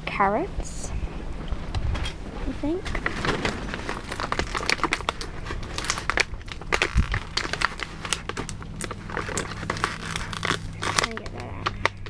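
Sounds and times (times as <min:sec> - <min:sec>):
plastic packaging crinkling: 0:02.9 - 0:12.0.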